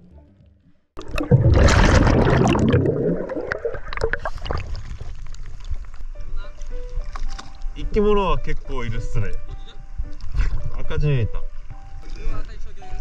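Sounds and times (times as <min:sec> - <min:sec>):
water rushing and splashing: 0:01.0 - 0:05.8.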